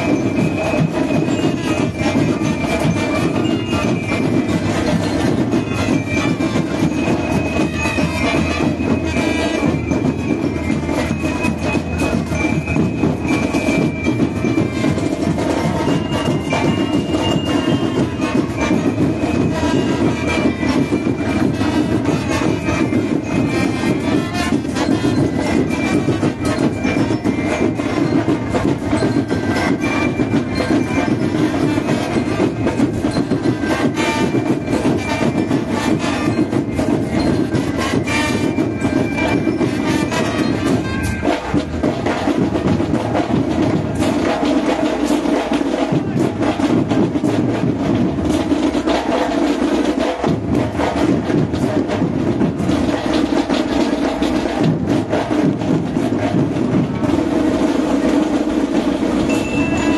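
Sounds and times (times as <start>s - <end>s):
marching band drumming: 0.0s - 59.9s
melody instruments holding tones: 57.1s - 59.9s.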